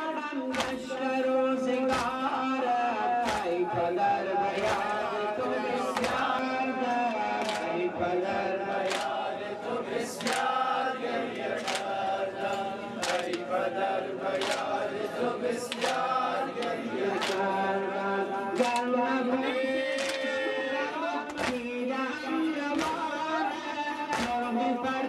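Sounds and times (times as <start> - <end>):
men chanting a lament: 0.0 - 25.0
sharp rhythmic beat: 3.2 - 6.4.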